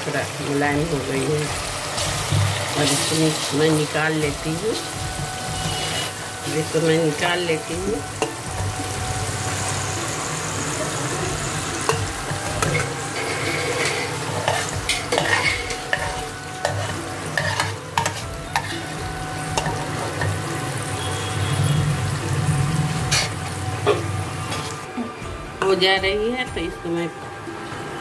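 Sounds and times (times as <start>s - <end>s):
vegetables sizzling in hot oil: 0.0s - 25.0s
metal spoon scraping a pan: 5.2s - 7.2s, 11.5s - 20.5s, 22.8s - 24.9s.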